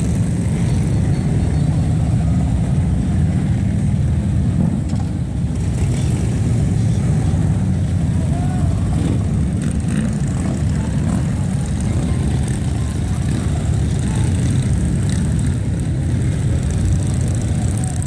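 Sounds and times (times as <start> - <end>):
motorcycles riding past: 0.0 - 18.0.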